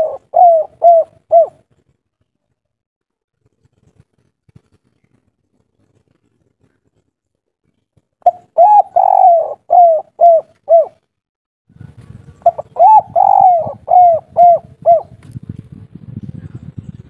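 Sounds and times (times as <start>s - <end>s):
dove cooing: 0.0s - 1.6s, 8.2s - 11.0s, 12.4s - 15.2s.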